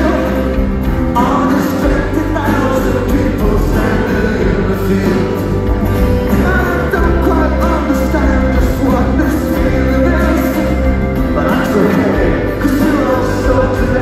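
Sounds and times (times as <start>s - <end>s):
live rock band playing: 0.0s - 14.0s
man singing: 0.0s - 14.0s.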